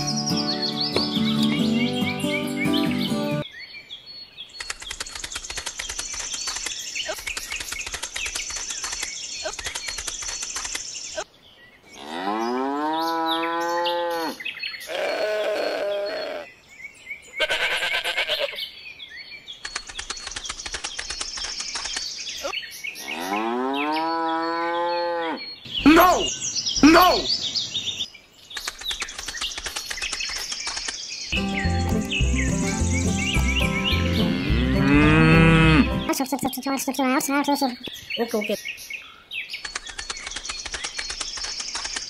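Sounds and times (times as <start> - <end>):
cow mooing: 23.0 - 25.4, 34.0 - 36.1.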